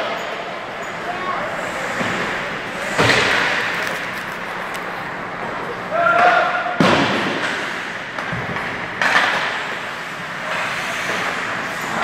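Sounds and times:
arena hum: 0:00.2 - 0:10.9
skates scraping on ice: 0:01.0 - 0:05.3.

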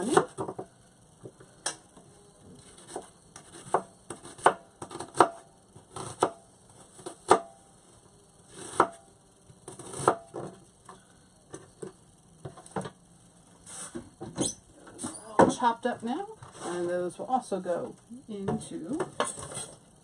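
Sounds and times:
knife chopping on cutting board: 0:02.8 - 0:06.4.

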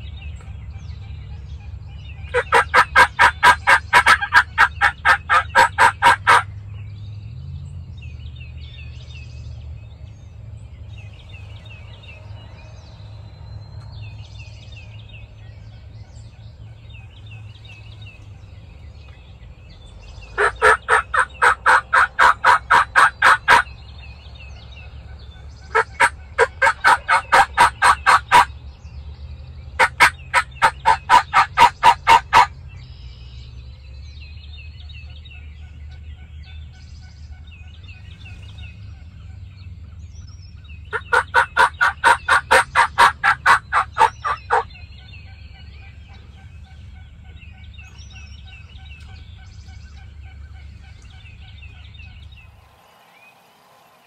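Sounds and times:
faint songbirds chirping: 0:00.0 - 0:54.0
turkey call hen yelps: 0:02.3 - 0:06.5, 0:20.4 - 0:23.7, 0:25.7 - 0:28.5, 0:29.8 - 0:32.5, 0:40.9 - 0:44.7.

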